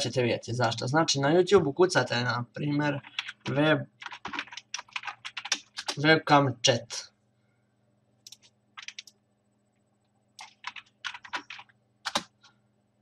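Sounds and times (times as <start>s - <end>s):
computer keyboard typing: 3.0s - 6.0s, 8.2s - 9.2s, 10.4s - 12.5s.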